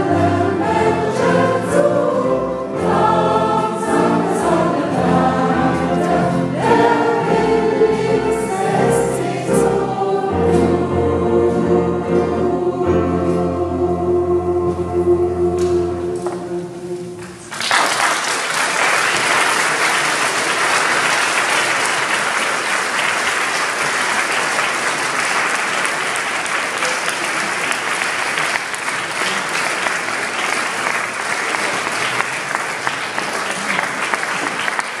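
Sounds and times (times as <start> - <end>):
choir chord: 0.0 - 17.4
audience applause: 17.2 - 35.0.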